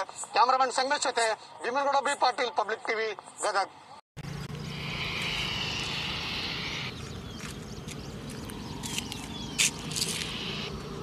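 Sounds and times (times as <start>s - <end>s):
bird chirps: 4.2s - 11.0s.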